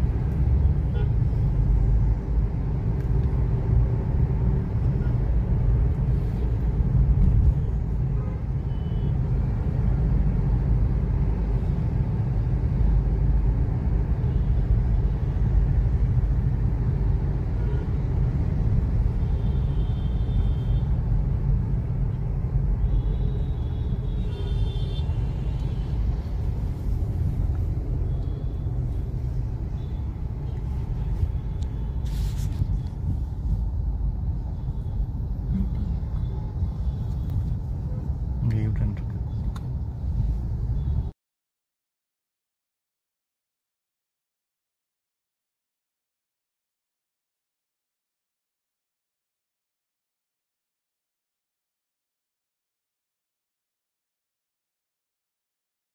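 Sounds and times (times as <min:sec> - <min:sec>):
car engine rumble: 0:00.0 - 0:41.1.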